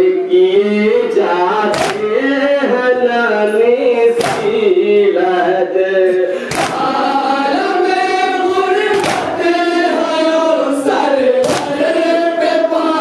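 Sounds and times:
group chanting a lament: 0:00.0 - 0:13.0
sharp beat: 0:04.2 - 0:04.6.

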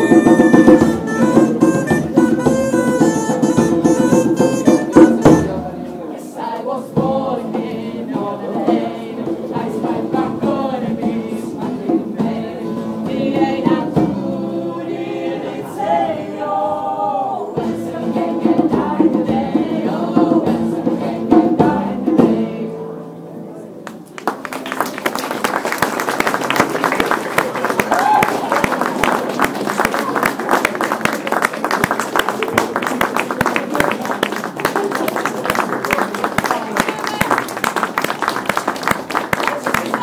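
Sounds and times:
choir singing: 0:03.2 - 0:23.1.

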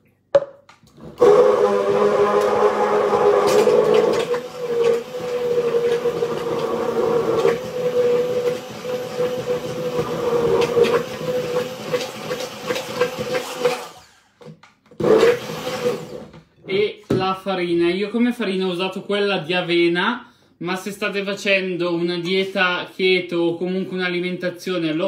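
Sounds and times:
immersion blender motor whine: 0:00.9 - 0:14.4, 0:15.0 - 0:16.3.

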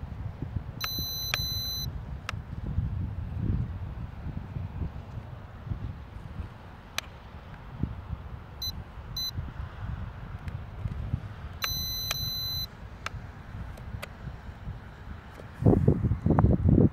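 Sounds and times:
wind rumble on microphone: 0:00.0 - 0:16.9
electronic beeps: 0:00.8 - 0:01.9, 0:08.6 - 0:09.3, 0:11.6 - 0:12.7.

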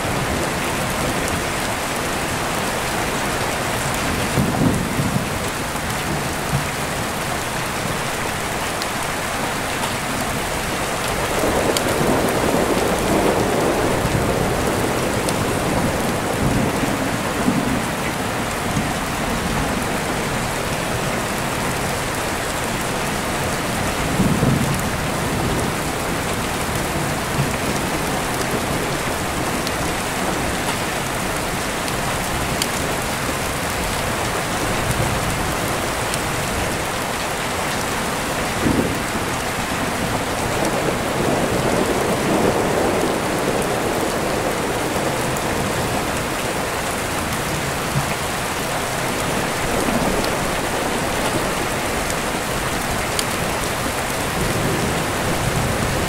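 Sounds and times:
steady rain: 0:00.0 - 0:56.0
deep rolling thunder: 0:23.6 - 0:30.6, 0:38.5 - 0:46.6.

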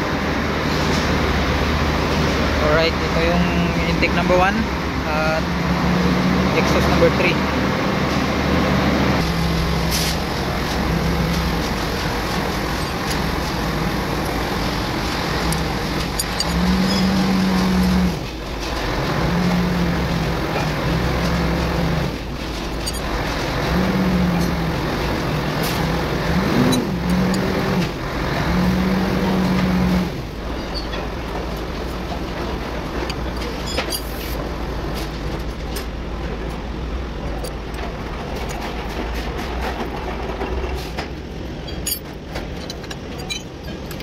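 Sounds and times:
vehicle engine running: 0:00.0 - 0:44.0.

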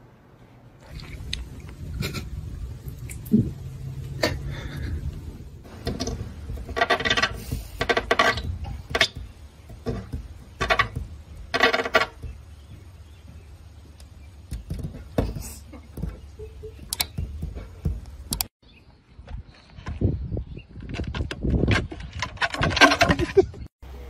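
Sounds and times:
low hum: 0:00.7 - 0:18.5.

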